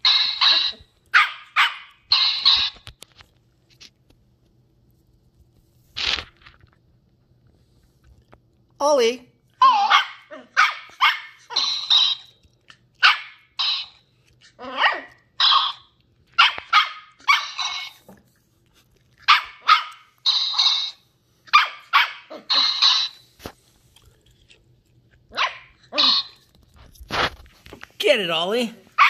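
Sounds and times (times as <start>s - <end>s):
puppy yapping: 0.3s - 2.0s, 9.6s - 12.3s, 13.0s - 14.0s, 14.6s - 18.0s, 19.2s - 23.2s, 25.3s - 26.4s.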